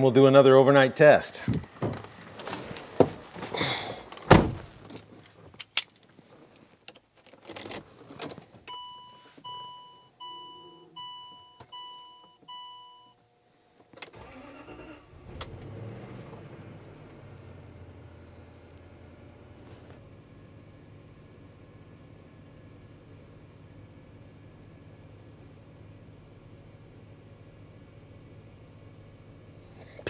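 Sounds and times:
low steady hum: 0.0s - 14.1s
car door clunk: 1.5s - 5.0s
dashboard warning chime: 8.7s - 13.2s.

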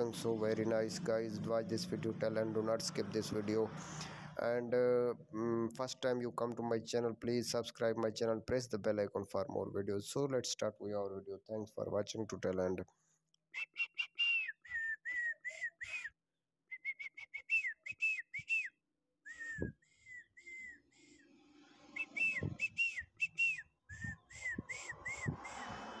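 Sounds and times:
high whistled notes: 19.3s - 26.0s.

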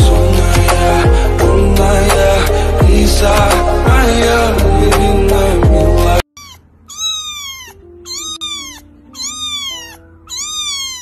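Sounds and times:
song with heavy beat: 0.0s - 6.2s
kitten meowing: 6.3s - 11.0s.

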